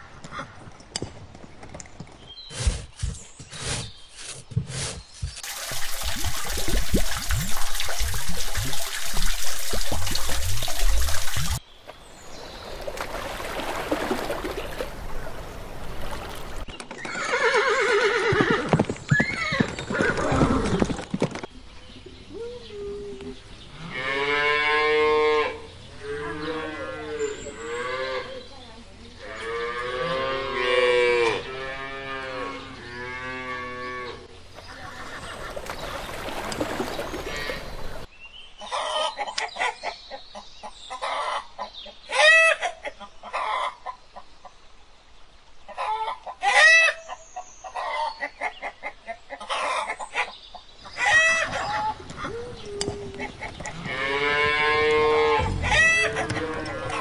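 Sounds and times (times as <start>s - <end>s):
water gushing from a hose: 5.4s - 11.6s
horse whinnying: 17.0s - 20.9s
cows mooing: 53.7s - 57.0s.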